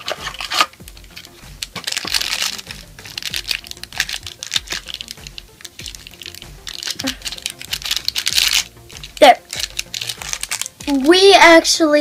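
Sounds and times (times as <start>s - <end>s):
foil packet crinkling: 0.0s - 11.2s
foil packet tearing: 0.0s - 11.2s
soft background music: 0.0s - 12.0s.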